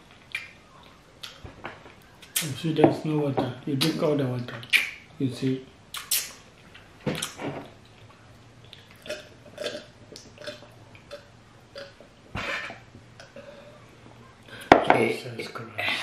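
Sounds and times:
open-mouthed chewing and smacking: 0.0 - 2.5, 5.9 - 13.4
short wet mouth clicks: 5.9 - 6.4.

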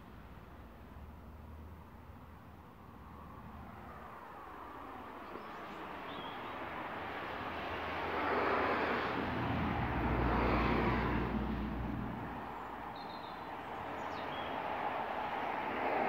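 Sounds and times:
vehicle engine rushing past: 7.7 - 12.5.

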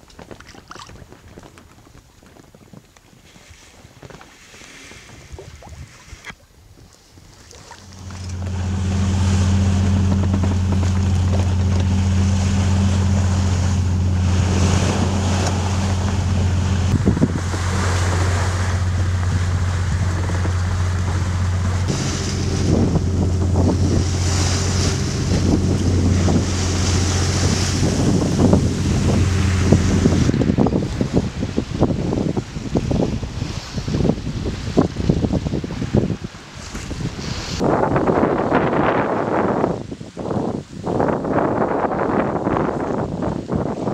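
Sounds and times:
wind buffeting microphone: 0.0 - 43.9
sea noise: 3.2 - 43.9
steady low hum: 7.6 - 33.3.

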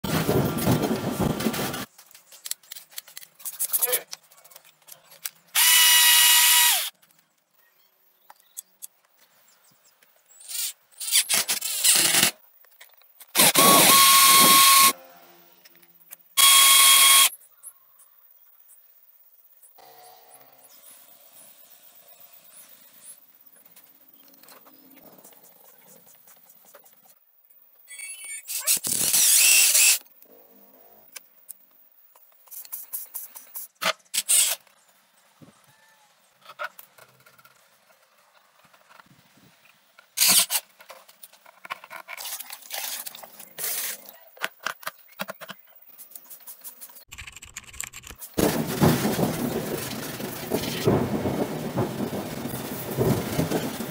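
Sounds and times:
clicks and scrapes: 40.0 - 48.4.

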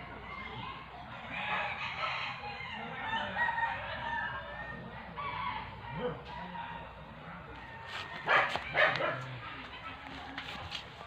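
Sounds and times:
rooster crowing: 1.3 - 6.9.

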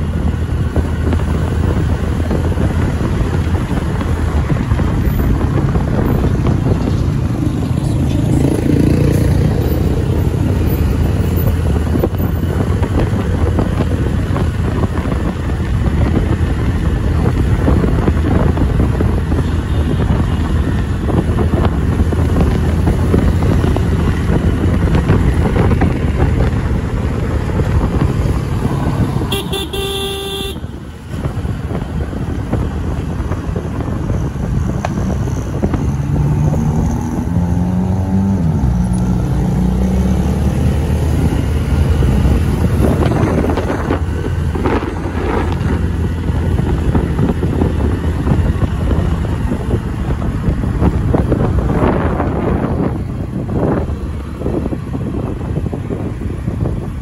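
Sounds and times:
motorcycle engine rumble: 0.0 - 57.0
wind on microphone: 0.0 - 57.0
vehicle horn honk: 29.3 - 30.8.

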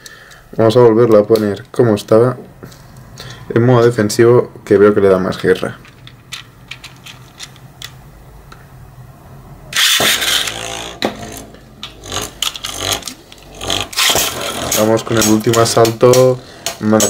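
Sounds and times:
plastic clicks: 5.8 - 8.6
spinning top launch whir: 9.8 - 14.8.

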